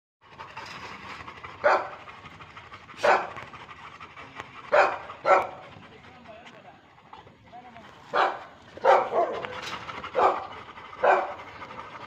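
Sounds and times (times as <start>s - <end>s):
dog panting: 0.2s - 12.0s
dog barking: 1.6s - 2.0s, 3.0s - 3.4s, 4.7s - 5.6s, 8.1s - 9.5s, 10.2s - 11.4s.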